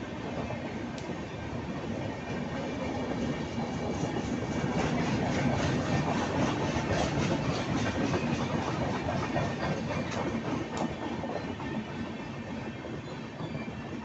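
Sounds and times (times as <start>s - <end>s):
train wheels rumbling on rails: 0.0s - 14.0s.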